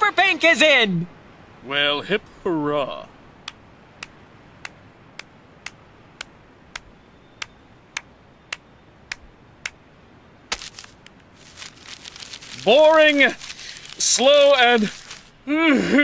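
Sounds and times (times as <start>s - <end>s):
papery rustle: 10.5s - 15.4s.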